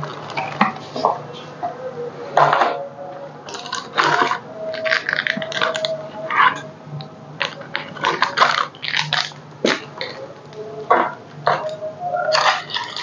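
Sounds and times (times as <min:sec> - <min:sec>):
utensils and containers clinking: 0:02.4 - 0:06.7, 0:07.4 - 0:13.0.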